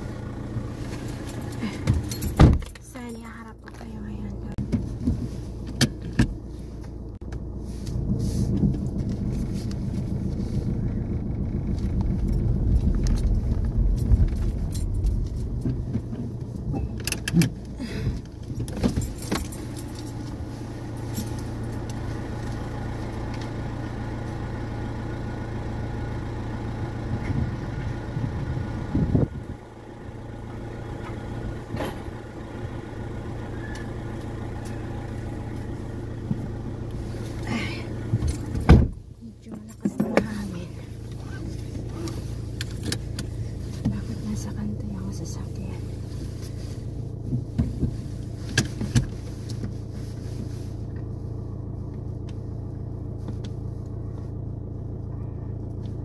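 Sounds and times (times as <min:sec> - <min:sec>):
car engine and road hum: 0:00.0 - 0:56.0.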